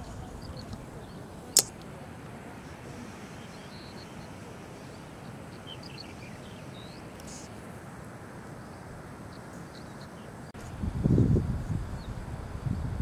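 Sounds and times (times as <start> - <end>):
steady background hiss: 0.0 - 13.0
sharp click: 1.5 - 1.9
faint bird chirps: 2.6 - 7.6, 8.5 - 10.5.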